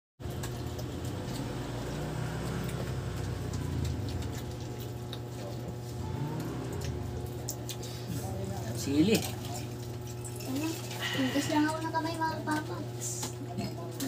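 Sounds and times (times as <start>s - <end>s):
chewing and food handling: 0.2s - 14.0s
steady low hum: 0.2s - 14.0s.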